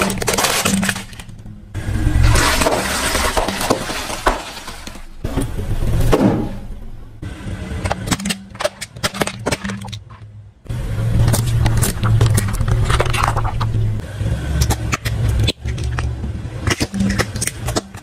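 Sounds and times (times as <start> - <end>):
plastic toys cracking: 0.0 - 1.4, 7.9 - 10.3, 11.2 - 13.8, 14.6 - 18.0
tyre crushing plastic and snacks: 0.0 - 1.4, 2.2 - 5.2, 11.2 - 13.8.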